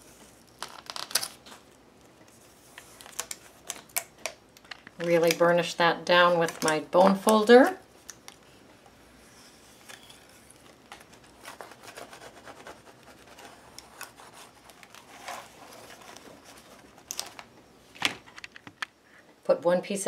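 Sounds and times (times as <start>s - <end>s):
paper rustle: 9.8s - 17.5s.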